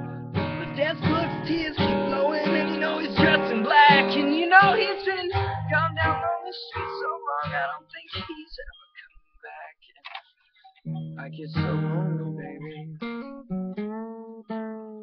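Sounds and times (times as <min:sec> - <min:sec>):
acoustic guitar strumming: 0:00.0 - 0:08.8, 0:10.8 - 0:15.0
man singing: 0:00.5 - 0:10.0, 0:11.2 - 0:13.0.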